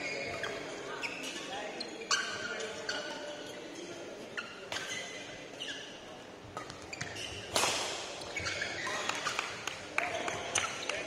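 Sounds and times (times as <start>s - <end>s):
shoes squeaking on court: 0.0s - 9.7s
rackets striking shuttlecock: 6.6s - 8.2s.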